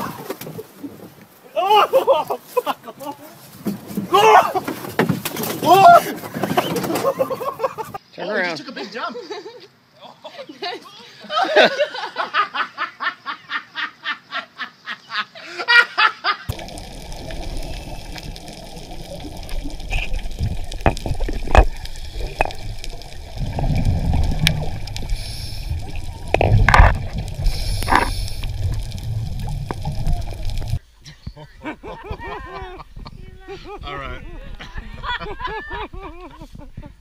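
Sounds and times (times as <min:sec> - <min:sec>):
bubbling bursts: 0:16.5 - 0:30.8
underwater water rush: 0:16.5 - 0:30.8.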